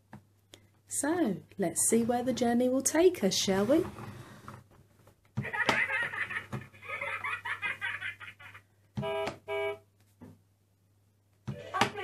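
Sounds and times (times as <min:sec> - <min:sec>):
toy car horn beeps: 0:09.0 - 0:09.8.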